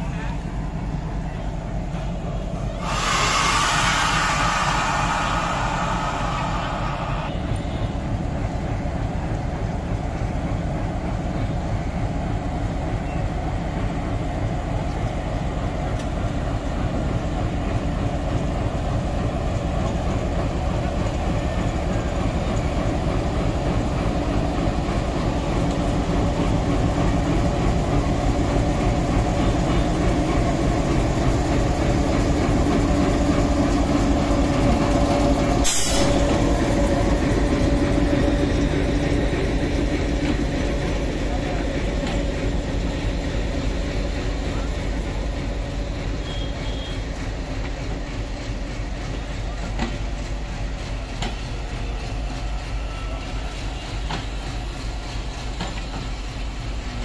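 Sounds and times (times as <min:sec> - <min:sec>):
diesel locomotive engine drone: 0:00.0 - 0:57.0
sharp hiss: 0:02.8 - 0:07.4, 0:35.6 - 0:36.5.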